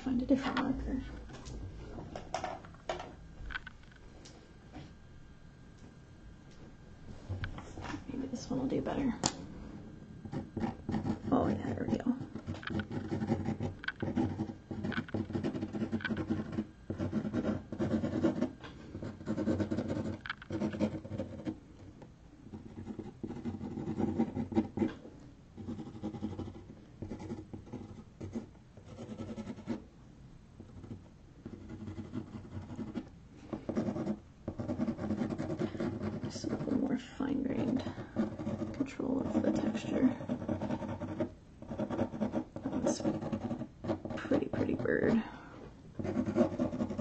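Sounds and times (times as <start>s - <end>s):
marker scratching on canvas board: 10.2s - 21.6s, 22.5s - 25.0s, 25.6s - 29.8s, 30.6s - 45.2s, 46.0s - 47.0s.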